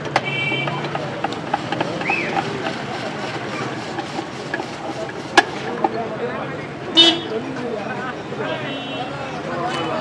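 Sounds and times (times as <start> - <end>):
street traffic: 0.0 - 10.0
hand-cranked potato cutter turning: 0.1 - 6.0.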